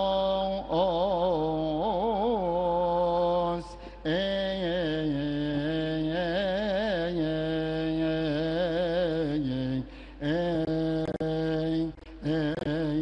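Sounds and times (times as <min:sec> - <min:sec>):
man chanting: 0:00.0 - 0:13.0.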